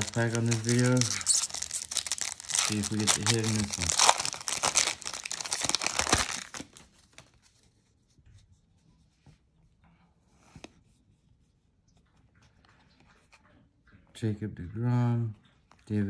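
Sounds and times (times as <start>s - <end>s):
cards rustling and clicking: 0.0s - 7.4s
foil wrapper crinkling: 0.0s - 7.4s.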